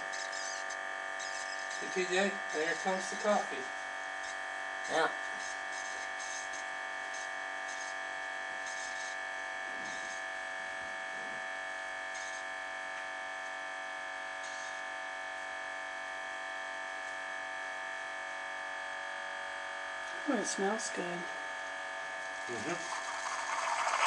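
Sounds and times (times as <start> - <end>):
coffee brewer buzzing: 0.0 - 24.0
coffee streaming into cup: 22.3 - 24.0.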